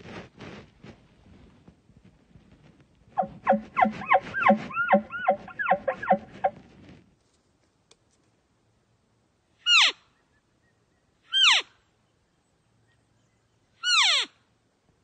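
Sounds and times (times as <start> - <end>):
elk chirping mews: 3.2 - 6.6.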